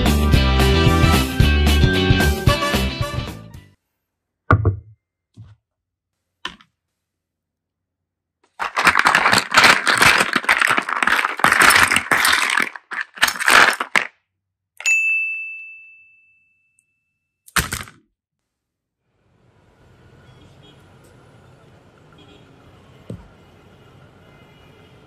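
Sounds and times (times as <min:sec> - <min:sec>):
plastic blocks clattering into basket: 0:08.5 - 0:14.2
bright ding: 0:14.8 - 0:17.1.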